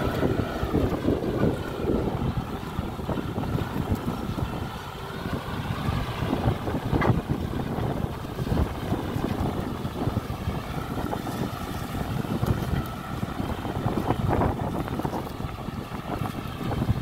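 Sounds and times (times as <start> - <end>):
tractor diesel engine under load: 0.0 - 17.0
wind buffeting microphone: 0.0 - 17.0.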